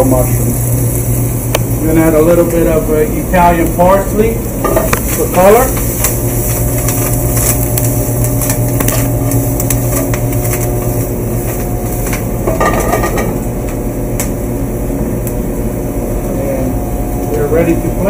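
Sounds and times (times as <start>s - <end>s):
ventilation hood hum: 0.0s - 18.0s
pan knocking on burner grate: 4.6s - 14.3s.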